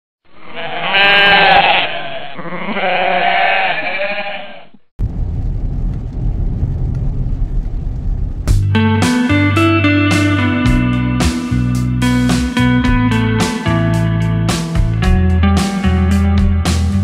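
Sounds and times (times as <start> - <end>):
goat bleating: 0.3 - 4.8
road rumble inside car: 5.0 - 8.5.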